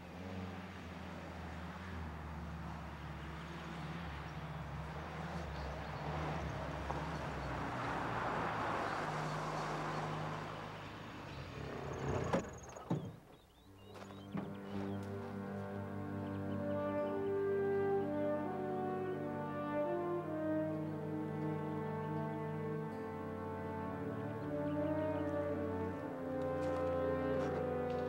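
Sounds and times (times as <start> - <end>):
jeep engine running: 0.0 - 16.3.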